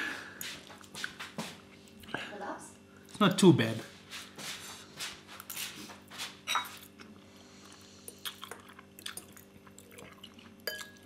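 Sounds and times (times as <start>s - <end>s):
forks clinking on glass bowl: 6.4s - 6.8s, 10.6s - 11.0s.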